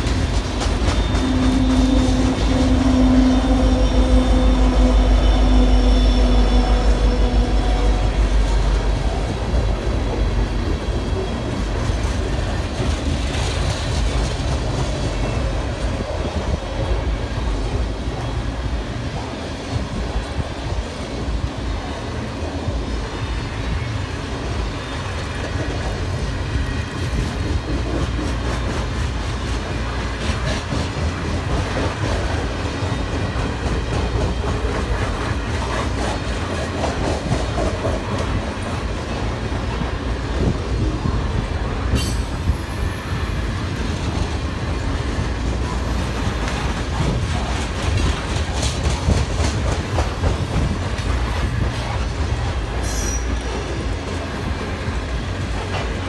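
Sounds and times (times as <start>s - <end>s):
high wheel squeals: 0.0s - 13.1s, 52.7s - 54.0s
wheels clacking over rail joints: 0.0s - 19.8s, 24.5s - 56.0s
train wheels rumbling: 0.0s - 56.0s.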